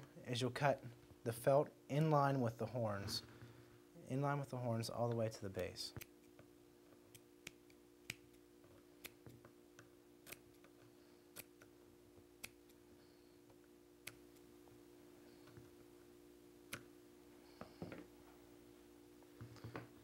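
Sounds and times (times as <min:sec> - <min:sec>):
steady low hum: 0:00.0 - 0:20.0
scissors snipping: 0:10.2 - 0:10.7.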